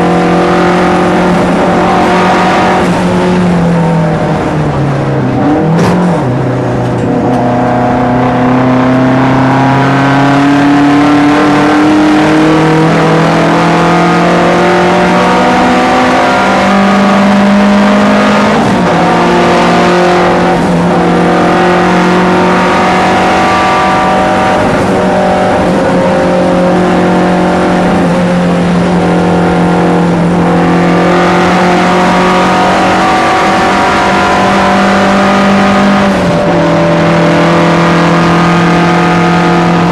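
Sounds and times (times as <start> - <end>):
race car engine pulling hard: 0.0 - 39.9.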